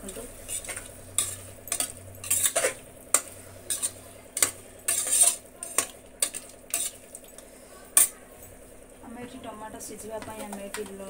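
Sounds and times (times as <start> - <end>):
spatula scraping a pot: 0.4 - 7.1.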